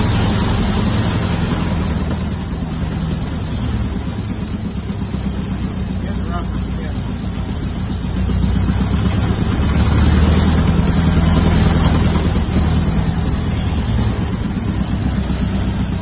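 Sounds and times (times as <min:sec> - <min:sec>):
aircraft engine running: 0:00.0 - 0:16.0.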